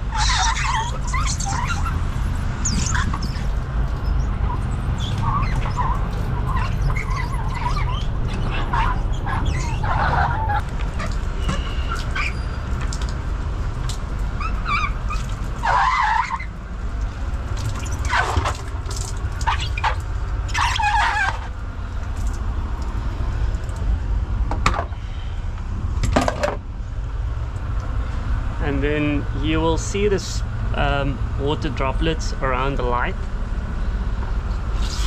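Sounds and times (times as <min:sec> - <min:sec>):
squeegee squeaking on wet surface: 0:00.0 - 0:23.1, 0:34.7 - 0:35.0
steady low rumble: 0:00.0 - 0:35.0.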